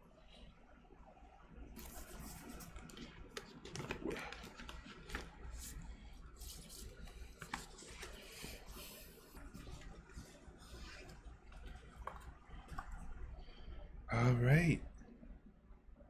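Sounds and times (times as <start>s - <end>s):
paper rustling and crinkling: 1.8s - 12.9s
small clicks and taps: 11.5s - 13.0s.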